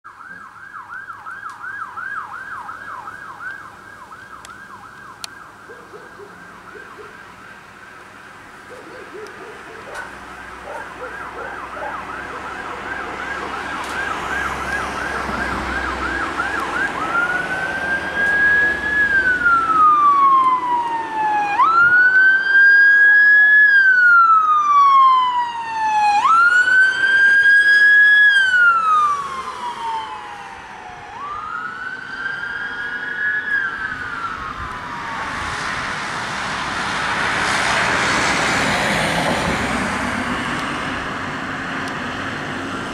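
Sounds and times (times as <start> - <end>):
fire van siren: 0.0 - 42.9.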